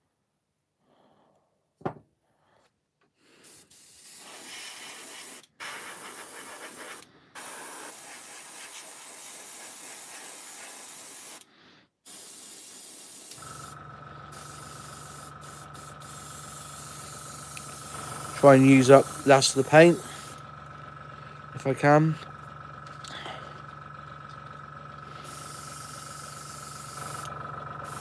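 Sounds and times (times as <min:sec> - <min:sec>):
airbrush spraying hiss: 0:03.4 - 0:11.4, 0:12.0 - 0:20.4, 0:25.1 - 0:28.0.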